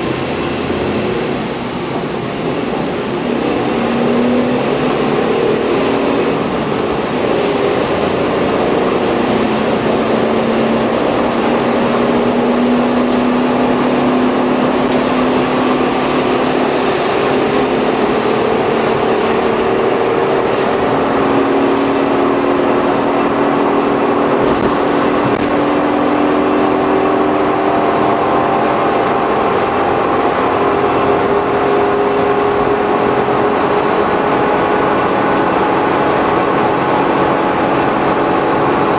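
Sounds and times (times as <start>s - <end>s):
tyre and road noise: 0.0s - 38.9s
van engine droning: 0.0s - 38.9s.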